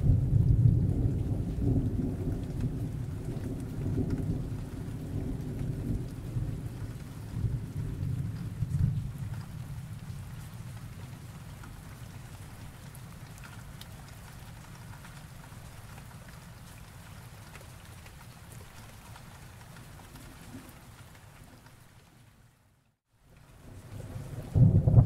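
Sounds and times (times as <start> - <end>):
low thunder rumble: 0.0 - 11.5, 23.6 - 25.0
steady rain: 0.0 - 25.0.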